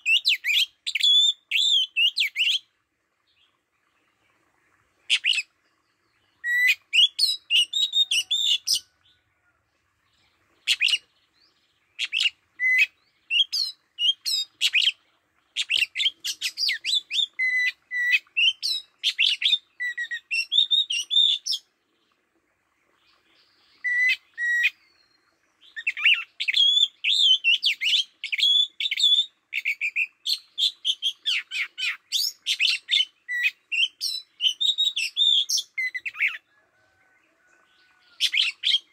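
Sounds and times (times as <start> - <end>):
bird whistling and chirping: 6.4 - 8.8, 12.0 - 15.0, 25.7 - 36.4.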